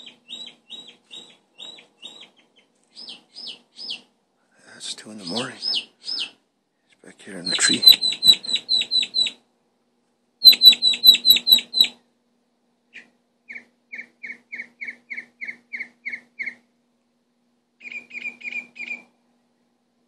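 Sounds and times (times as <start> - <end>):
songbird singing: 0.0 - 4.1, 4.9 - 6.4, 7.3 - 9.4, 10.4 - 12.0, 12.9 - 16.7, 17.8 - 19.1.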